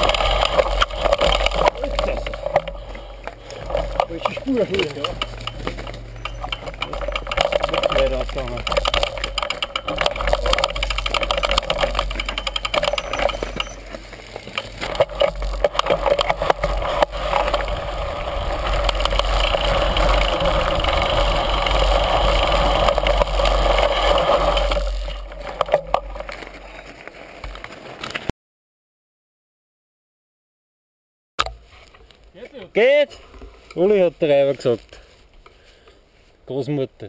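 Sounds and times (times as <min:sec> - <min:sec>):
steady rushing noise: 0:00.0 - 0:26.8
bike and stones rattling: 0:00.0 - 0:28.3
wind rumble on microphone: 0:14.9 - 0:26.3.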